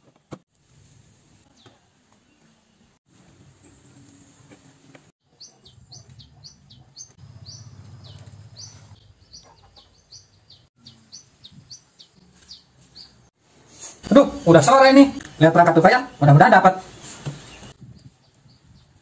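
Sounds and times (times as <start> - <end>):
bird chirping: 5.2 - 13.3, 14.1 - 19.0.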